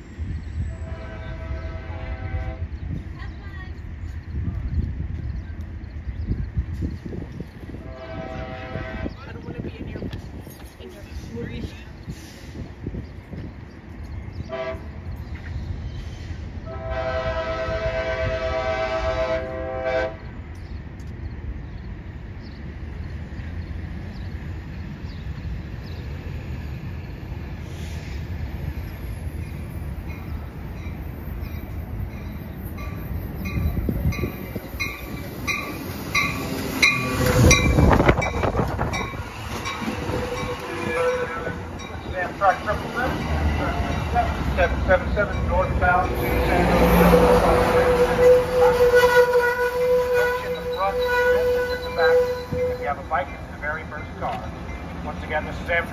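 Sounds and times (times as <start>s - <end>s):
passenger train rolling past: 0.0s - 55.9s
train whine: 0.0s - 55.9s
train air horn: 0.7s - 2.8s, 7.8s - 9.3s, 14.5s - 15.0s, 16.6s - 20.3s, 40.0s - 41.6s, 46.2s - 53.0s
crossing bell dinging: 29.3s - 49.1s.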